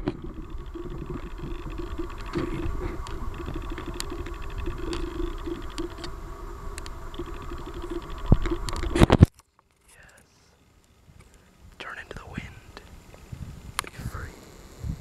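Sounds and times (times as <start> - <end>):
rapid high buzzing: 0.0 - 9.3, 12.3 - 15.0
wind on microphone: 0.0 - 9.3, 12.2 - 15.0.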